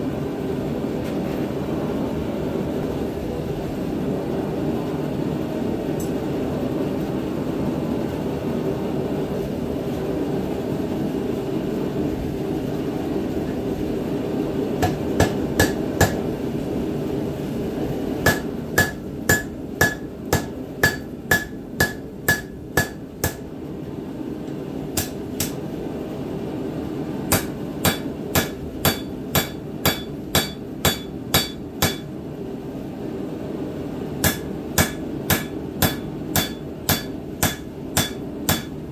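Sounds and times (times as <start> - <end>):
hammer striking metal on anvil: 14.8 - 16.2, 18.3 - 23.4, 25.0 - 25.6, 27.3 - 32.1, 34.2 - 38.8.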